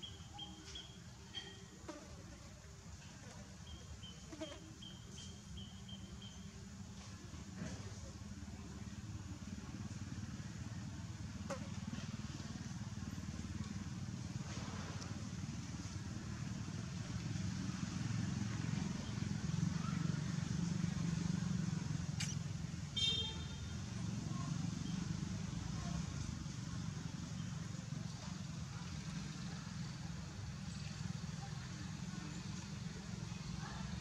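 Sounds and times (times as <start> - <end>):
vehicle engine rumble: 0.0 - 34.0.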